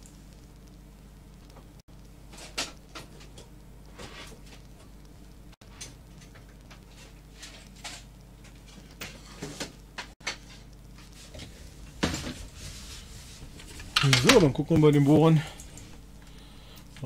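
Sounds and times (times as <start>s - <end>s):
low steady hum: 0.0s - 17.0s
scrape: 4.0s - 4.4s, 10.4s - 13.8s
things being handled and rummaged: 5.6s - 17.0s.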